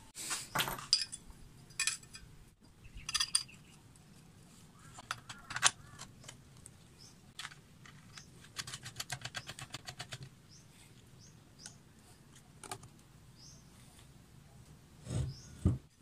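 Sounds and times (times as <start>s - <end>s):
metal bolts and nuts clinking: 0.5s - 3.7s.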